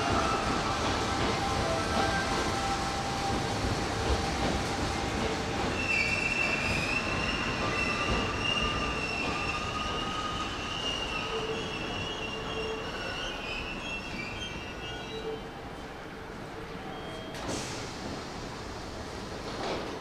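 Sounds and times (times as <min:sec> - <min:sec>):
train wheels rumbling on rail: 0:00.0 - 0:15.2, 0:17.2 - 0:20.0
high wavering wheel squeal: 0:05.8 - 0:15.4.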